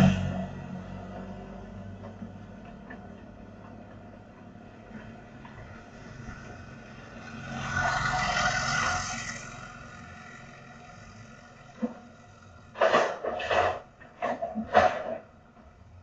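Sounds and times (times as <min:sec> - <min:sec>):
motorcycle passing by: 0:00.0 - 0:02.6, 0:05.0 - 0:12.8.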